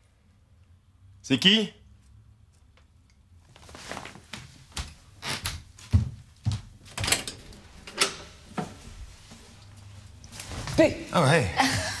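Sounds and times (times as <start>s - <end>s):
footsteps on wooden floor: 4.0s - 7.0s
door lock and handle clicking: 7.0s - 8.6s.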